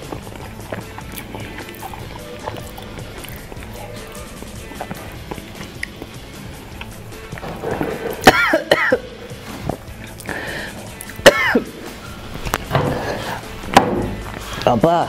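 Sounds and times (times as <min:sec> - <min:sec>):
background music: 0:00.0 - 0:15.0
man coughing and clearing throat: 0:07.7 - 0:09.3, 0:11.1 - 0:11.8.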